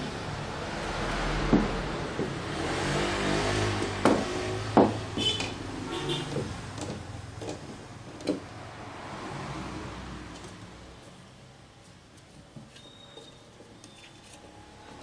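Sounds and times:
wooden crate knocks and clatter: 4.0s - 5.6s
short squeaks: 12.7s - 14.5s.

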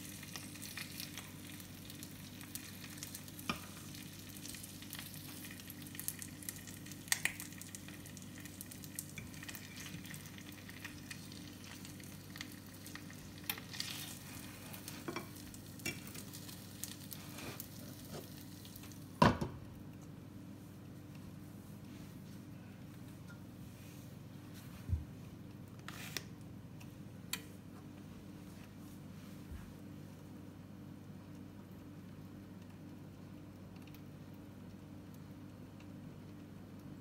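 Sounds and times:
meat sizzling in a frying pan: 0.0s - 19.2s.

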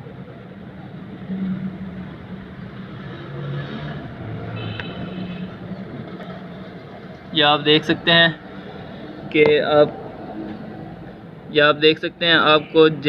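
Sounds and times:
vehicle engines humming: 0.0s - 13.0s.

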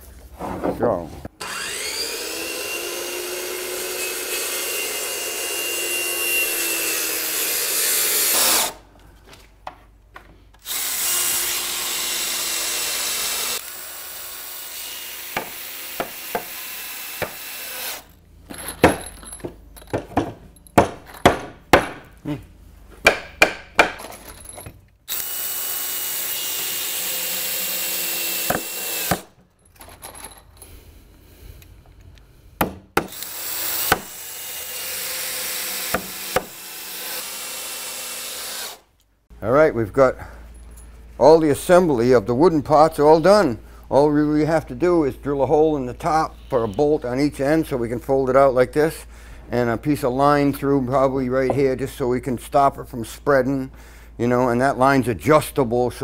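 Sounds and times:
power drill driving screws: 1.4s - 8.8s, 10.6s - 18.2s, 25.1s - 29.3s, 33.1s - 38.8s.

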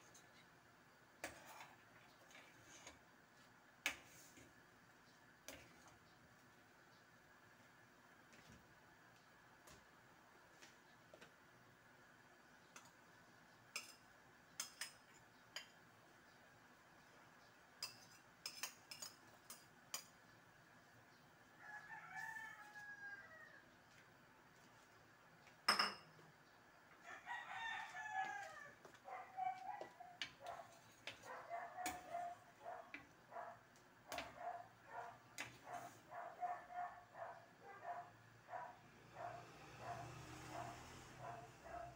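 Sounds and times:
spatula clinking on a pan: 13.7s - 15.8s, 17.8s - 20.2s
rooster crowing: 21.6s - 23.7s, 27.0s - 28.9s.

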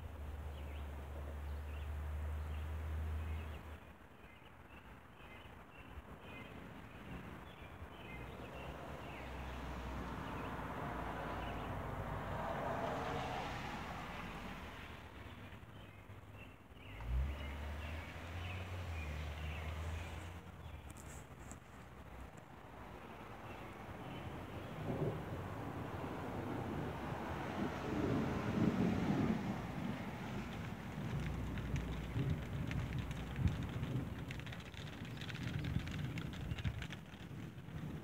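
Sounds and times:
small birds chirping: 0.4s - 10.6s, 14.2s - 21.9s, 30.4s - 38.0s
car passing on wet road: 8.2s - 15.3s, 16.9s - 20.6s, 22.0s - 38.0s
wind rumbling on microphone: 16.8s - 38.0s
rain hissing: 27.1s - 38.0s.

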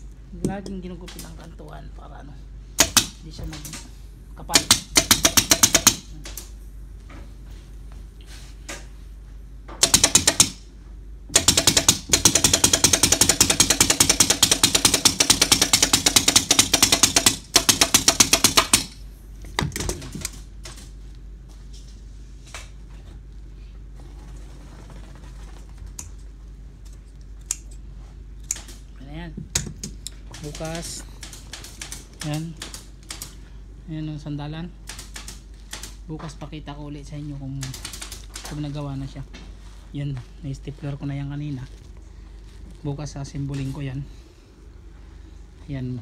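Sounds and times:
pneumatic staple gun firing: 2.8s - 3.2s, 9.8s - 10.6s, 11.3s - 19.0s.

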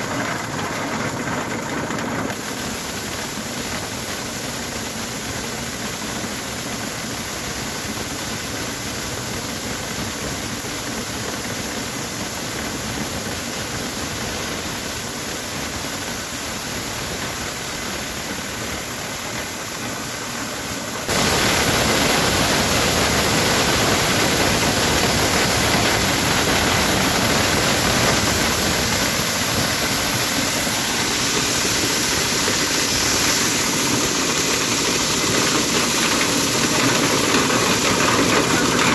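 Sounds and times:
corn sheller running: 0.0s - 38.9s
kernels pouring into a sack: 21.1s - 38.9s.

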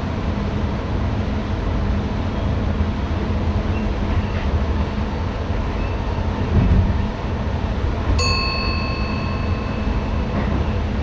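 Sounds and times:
electric train low rumble: 0.0s - 11.0s
bell-like ding: 8.2s - 10.4s.

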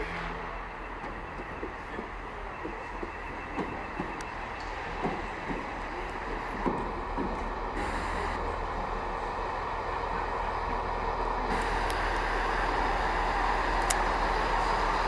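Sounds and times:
train wheels knocking on rail joints: 1.0s - 8.1s
diesel engine drone: 7.7s - 15.0s.

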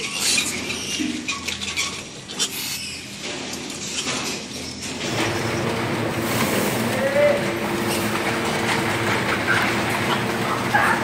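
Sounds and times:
steel rails knocking and rattling: 7.4s - 11.0s.

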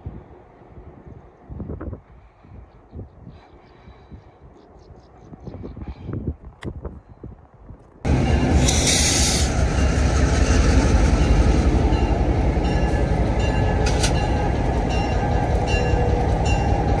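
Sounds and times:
diesel locomotive engine rumble: 7.4s - 17.0s
train wheels rolling on rails: 8.1s - 17.0s
short burst of hiss: 8.6s - 9.5s.

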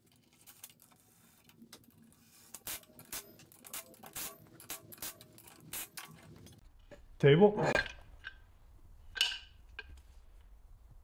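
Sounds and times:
metal parts clicking and knocking: 9.1s - 10.0s.

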